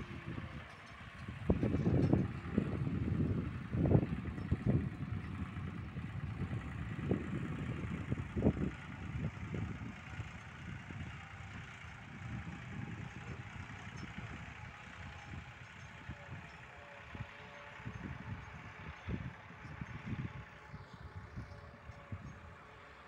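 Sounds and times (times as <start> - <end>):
wind buffeting microphone: 0.0 - 22.7
tractor engine running: 0.0 - 23.0.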